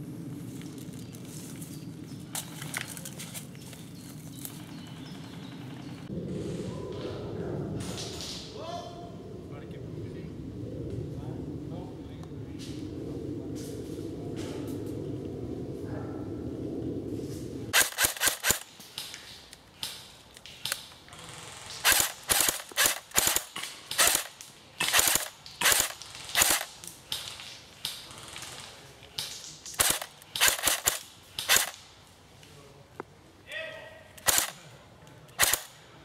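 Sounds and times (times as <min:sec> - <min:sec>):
airsoft rifle shots: 0:17.7 - 0:18.7, 0:21.8 - 0:26.7, 0:29.8 - 0:31.8, 0:34.2 - 0:34.6, 0:35.4 - 0:35.8.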